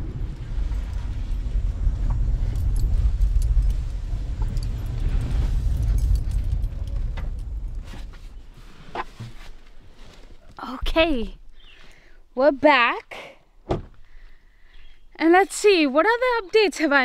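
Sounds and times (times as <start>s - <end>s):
car engine and road rumble: 0.0s - 11.6s
light clicks and rattles: 0.2s - 8.3s.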